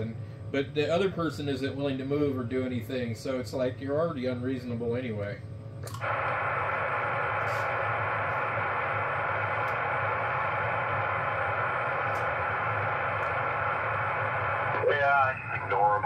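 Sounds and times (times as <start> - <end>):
low hum: 0.0 - 16.0
radio receiver hiss: 5.8 - 16.0.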